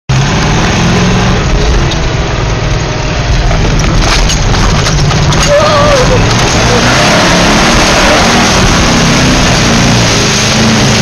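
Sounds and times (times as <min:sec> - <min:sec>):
truck engine running hard: 0:00.1 - 0:11.0
sharp knocks and clatters: 0:02.6 - 0:06.7
mud spattering on truck: 0:03.3 - 0:07.0.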